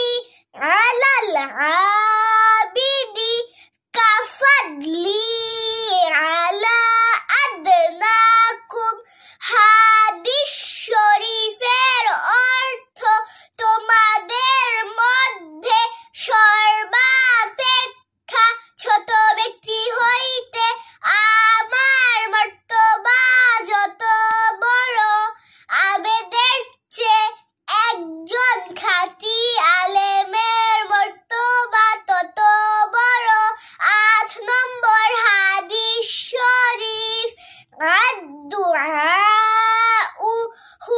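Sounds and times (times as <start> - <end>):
girl singing unaccompanied: 0.0 - 40.9.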